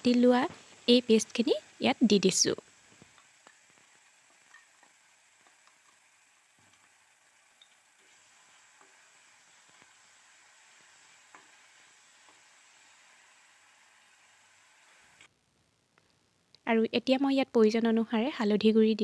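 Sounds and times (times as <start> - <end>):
paste sizzling in oil: 0.0 - 15.3
spoon scraping and tapping pan: 2.9 - 8.1, 11.2 - 11.6.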